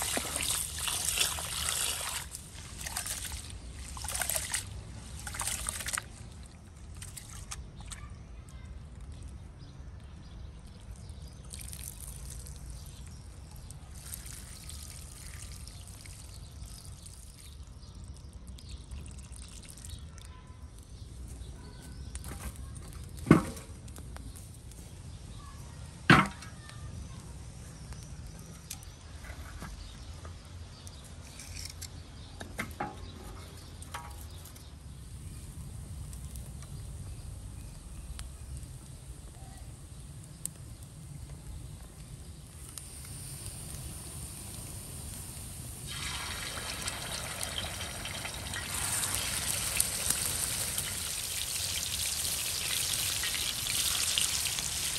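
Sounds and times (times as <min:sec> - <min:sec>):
water trickling and pouring: 0:00.0 - 0:07.6, 0:11.4 - 0:20.3, 0:45.7 - 0:54.9.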